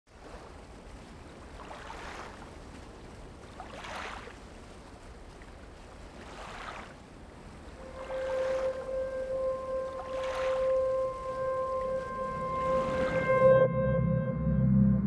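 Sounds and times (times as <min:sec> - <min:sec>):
sea waves washing: 0:00.1 - 0:13.7
sustained musical note: 0:07.8 - 0:15.0
low steady rumble: 0:11.0 - 0:15.0.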